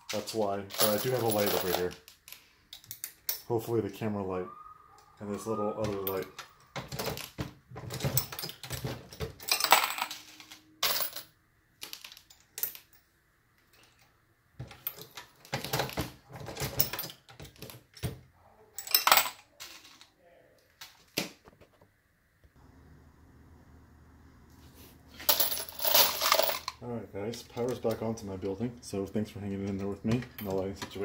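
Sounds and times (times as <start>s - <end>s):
brass cases clinking: 0.0s - 3.5s, 6.0s - 13.0s, 18.8s - 20.0s, 25.2s - 26.8s, 29.6s - 31.0s.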